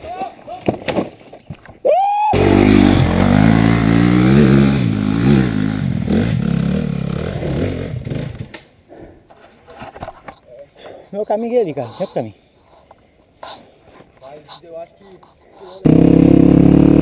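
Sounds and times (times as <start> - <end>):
motorcycle engine revving: 2.4 - 8.5, 15.8 - 17.0.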